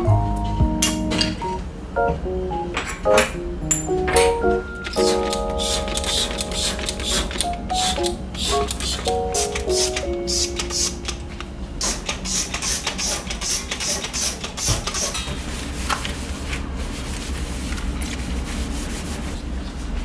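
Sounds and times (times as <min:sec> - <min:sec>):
cloth rubbing on steel stovetop: 0:15.4 - 0:20.0.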